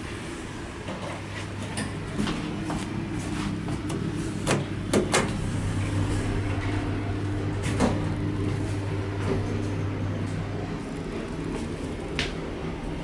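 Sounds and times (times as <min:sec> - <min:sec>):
steady low hum: 0:00.0 - 0:13.0
elevator doors sliding shut: 0:03.9 - 0:12.1.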